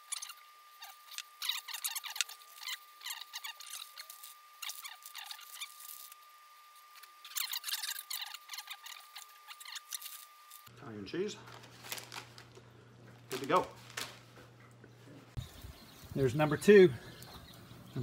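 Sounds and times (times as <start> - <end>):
faint high whine: 0.0 - 11.5
plastic bag crinkling: 0.8 - 6.2, 11.4 - 14.4.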